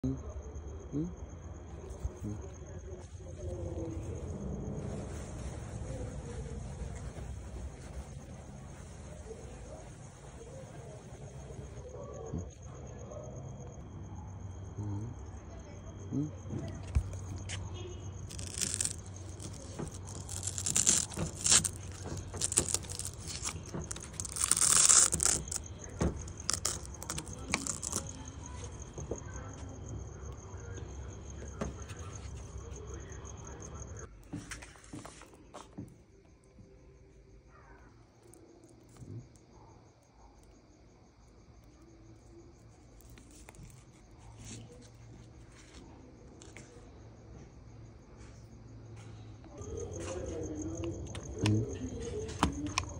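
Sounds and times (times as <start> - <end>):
hook-and-loop peeling rasps: 18.2 - 28.9
foil pouch crinkling: 18.2 - 29.1.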